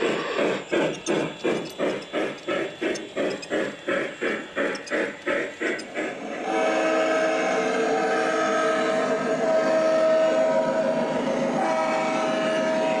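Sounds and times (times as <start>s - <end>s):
model steam locomotive chuffing: 0.0s - 13.0s
model diesel locomotive horn: 6.4s - 13.0s.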